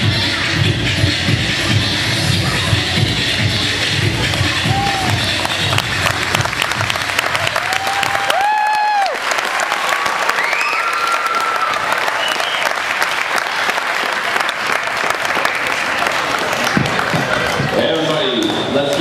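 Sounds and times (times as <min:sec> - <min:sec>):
high-pitched whoops and cheers: 0:04.6 - 0:05.2, 0:07.3 - 0:12.8
audience applauding: 0:04.7 - 0:19.0.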